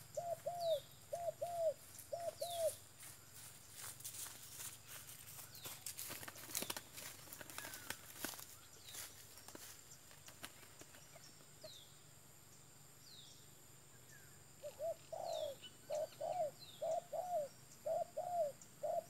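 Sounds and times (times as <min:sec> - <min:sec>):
dove cooing: 0:00.0 - 0:02.8, 0:14.6 - 0:19.0
small bird chirping: 0:00.0 - 0:19.0.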